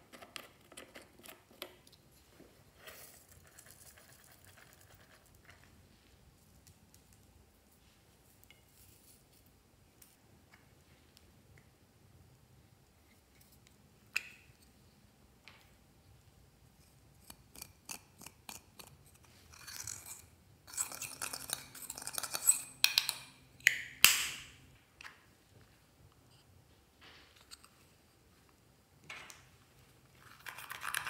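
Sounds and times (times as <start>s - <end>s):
metal spatula scraping powder: 16.8s - 22.8s.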